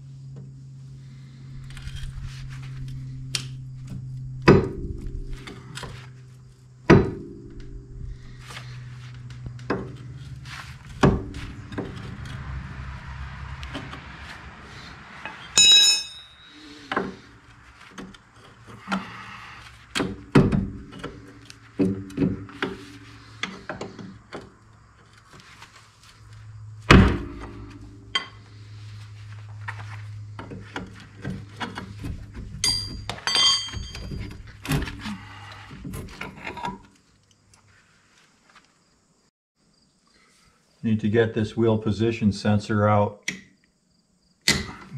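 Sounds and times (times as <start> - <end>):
metal tools clanking on wheel hub: 15.3 - 19.1, 27.3 - 28.4, 30.7 - 35.0
bright metallic rings: 15.5 - 16.8, 32.6 - 34.1.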